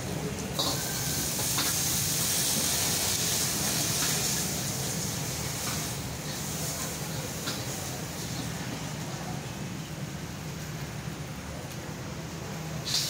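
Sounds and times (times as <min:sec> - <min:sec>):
noodles sizzling in a wok: 0:00.0 - 0:09.6, 0:12.7 - 0:13.0.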